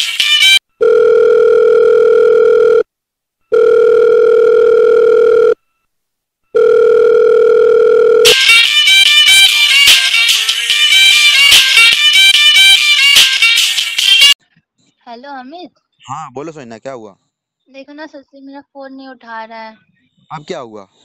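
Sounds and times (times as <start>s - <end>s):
music: 0.0s - 0.6s, 8.3s - 14.4s
telephone ringback tone: 0.8s - 5.8s, 6.5s - 8.4s.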